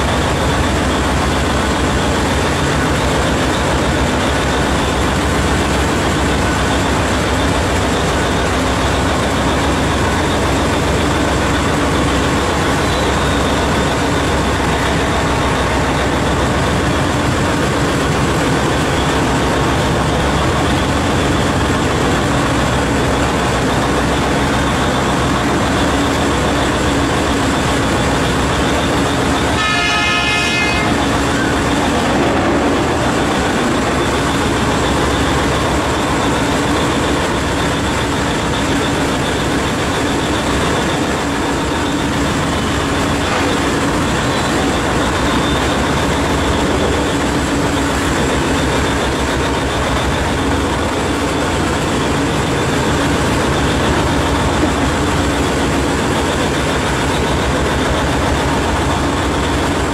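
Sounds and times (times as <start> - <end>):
mining shovel machinery noise: 0.0 - 59.9
horn sounding: 29.2 - 34.1.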